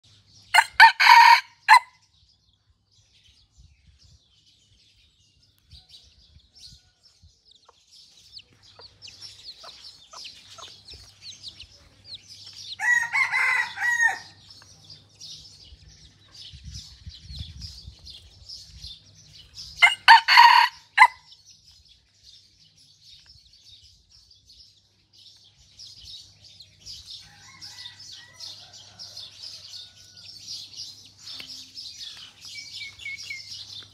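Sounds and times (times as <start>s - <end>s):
small birds chirping: 0.0s - 33.9s
rooster crowing: 0.6s - 1.9s, 12.8s - 14.4s, 19.8s - 21.2s, 27.2s - 30.4s.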